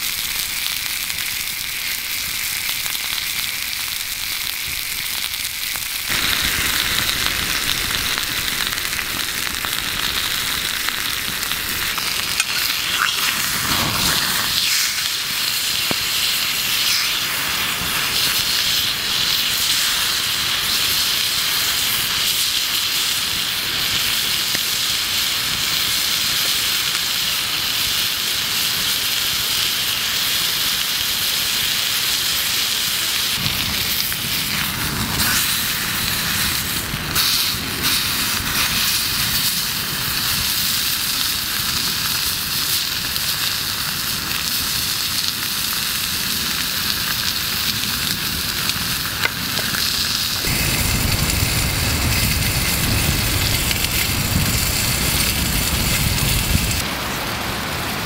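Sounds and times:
steak sizzling in a skillet: 0.0 - 56.8
campfire crackling: 0.0 - 58.0
low rumble: 50.5 - 56.8.

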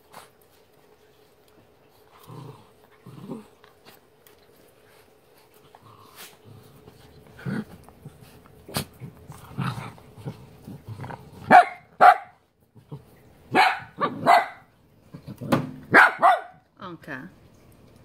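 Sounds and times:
dog growling: 1.9 - 4.0, 5.4 - 12.0, 13.8 - 15.7
dog barking: 11.5 - 12.4, 13.5 - 14.7, 15.9 - 16.6.

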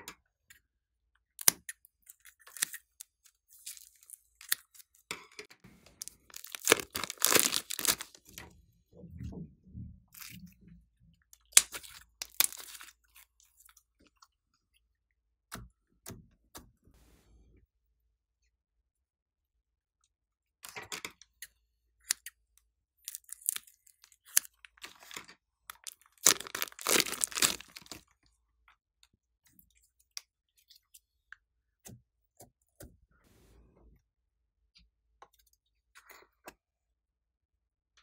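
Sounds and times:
slime crackling and squelching: 1.4 - 5.1, 5.8 - 8.4, 11.4 - 13.8, 23.0 - 28.1.

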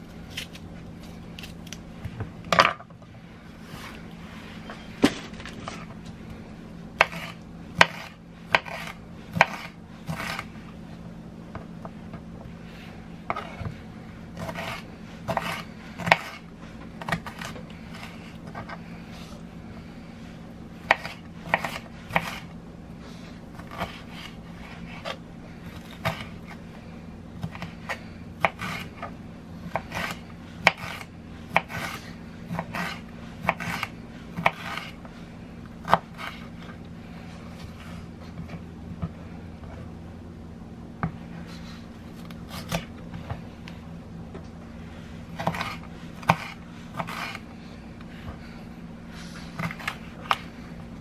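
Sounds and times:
low hum: 0.0 - 51.0
knife chopping on cutting board: 7.0 - 10.5, 14.4 - 18.8, 20.8 - 22.5, 25.8 - 26.6, 27.4 - 29.1, 29.7 - 35.0, 42.5 - 43.4, 45.4 - 47.4.

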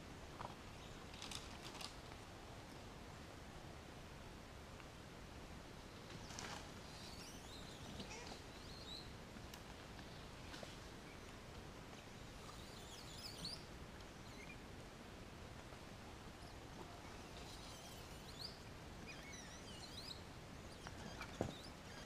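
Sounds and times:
faint steady hiss: 0.0 - 22.0
bird chirps and calls: 12.5 - 14.6.

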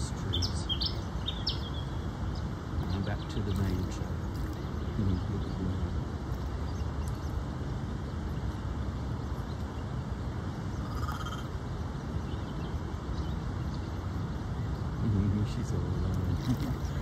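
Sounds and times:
distant freeway traffic rumble: 0.0 - 17.0
bird call: 10.8 - 11.5.

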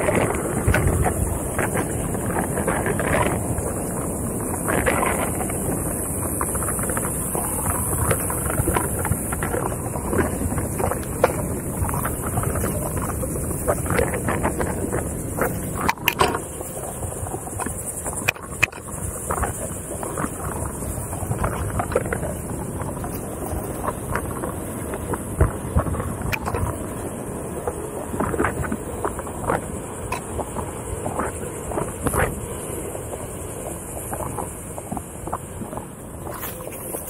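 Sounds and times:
tyre rolling over dirt trail: 0.0 - 37.0
wind buffeting microphone: 0.0 - 37.0
clicks and crackles from brush: 6.2 - 26.8.

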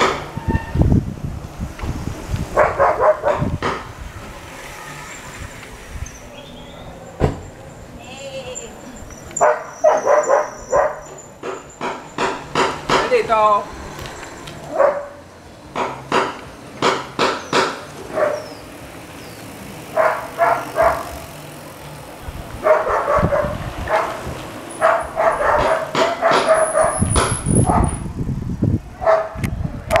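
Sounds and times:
dog barking: 2.6 - 3.5, 9.4 - 11.1, 14.7 - 15.2, 18.1 - 18.5, 19.9 - 21.1, 22.6 - 24.2, 24.8 - 27.0, 27.6 - 28.0, 29.0 - 30.0
low rumbling noise: 12.1 - 15.8.

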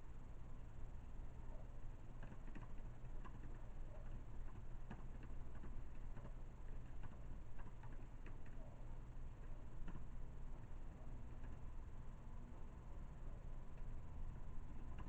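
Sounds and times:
low electrical hum: 0.0 - 15.0
computer keyboard keystrokes: 2.2 - 8.7, 9.8 - 10.1, 14.8 - 15.0.

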